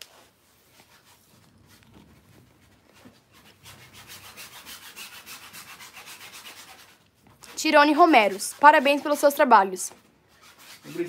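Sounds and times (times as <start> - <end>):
sponge scrubbing on canvas: 0.0 - 11.0.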